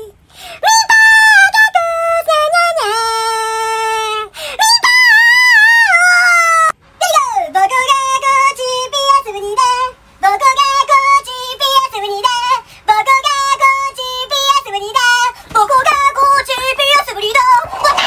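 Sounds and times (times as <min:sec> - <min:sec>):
high-pitched voice singing: 0:10.4 - 0:18.0.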